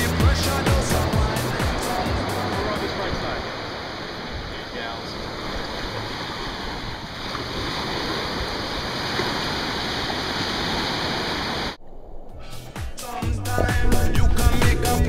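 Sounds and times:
electronic dance music: 0.0 - 2.8
ocean surf breaking: 0.0 - 11.8.

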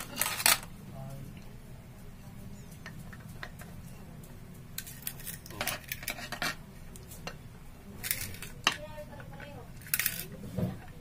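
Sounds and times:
plastic parts clicking and scraping: 8.0 - 8.8, 9.4 - 10.4.

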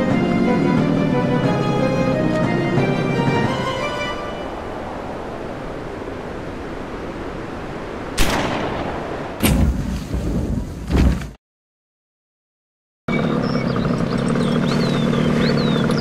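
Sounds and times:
steady rushing noise: 0.0 - 10.4.

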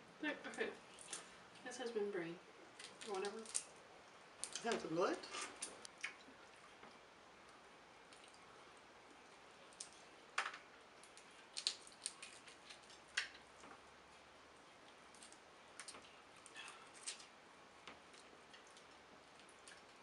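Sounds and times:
crab shells cracking: 2.8 - 3.8, 4.4 - 4.7, 9.7 - 13.7, 15.1 - 17.4.

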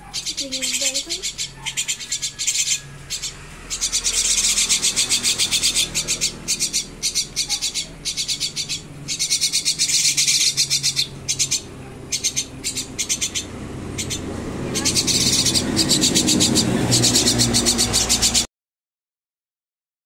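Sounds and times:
fledgling birds begging calls: 0.0 - 18.5.

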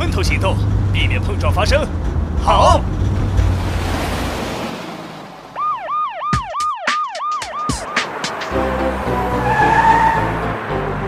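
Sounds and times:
cartoon siren wailing: 5.6 - 8.1
music with steady beat: 6.1 - 9.4.

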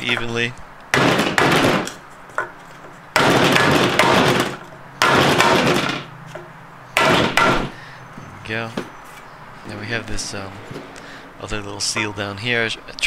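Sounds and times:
hammer striking wooden block: 0.9 - 7.7.

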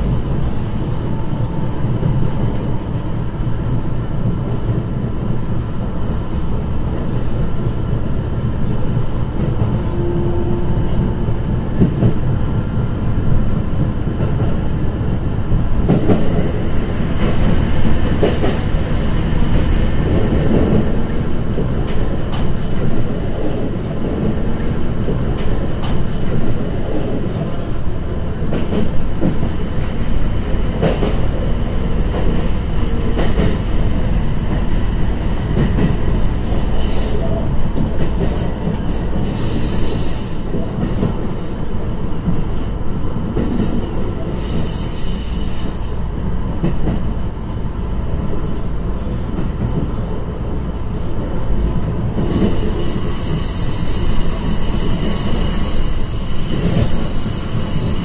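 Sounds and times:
train running noise: 0.0 - 58.0
wheel squeal: 52.4 - 58.0.

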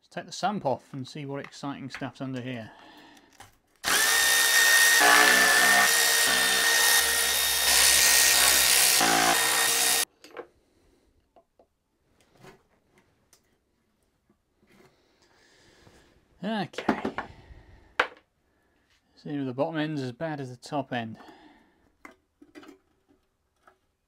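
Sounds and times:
power drill whining: 3.8 - 10.0.

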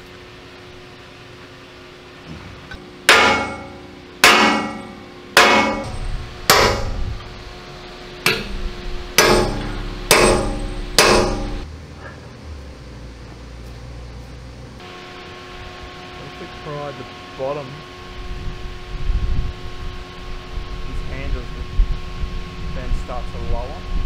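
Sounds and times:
hammer striking metal punch: 2.7 - 7.3, 8.2 - 11.7.

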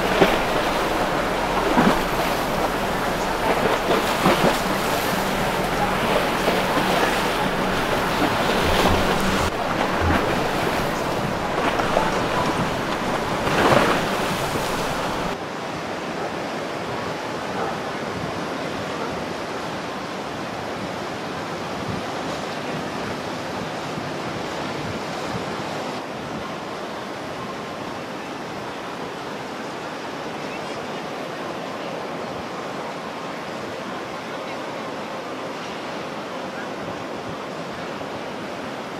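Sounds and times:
wind on microphone: 0.0 - 15.4
open water rushing hiss: 0.0 - 15.9.

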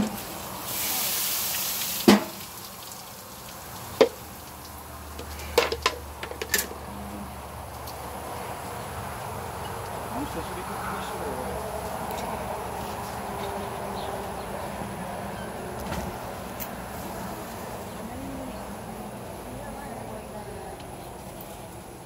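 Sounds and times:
sharp hiss: 0.0 - 2.5
clicks and clanks: 5.2 - 6.7.

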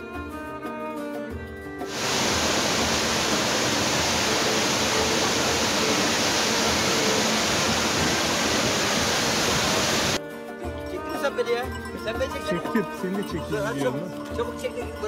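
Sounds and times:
waterfall rushing: 1.9 - 10.2.

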